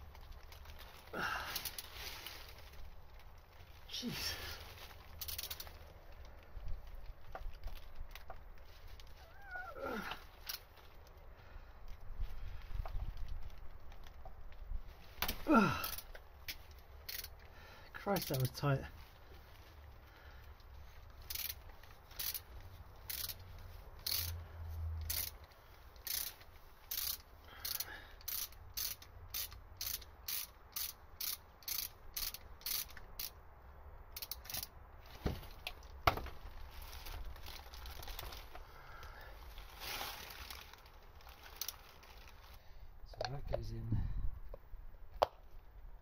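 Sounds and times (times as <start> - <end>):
ratchet wrench clicking: 5.2 - 5.8, 17.0 - 17.4, 21.2 - 23.4, 24.0 - 24.4, 25.0 - 33.4, 34.1 - 34.7.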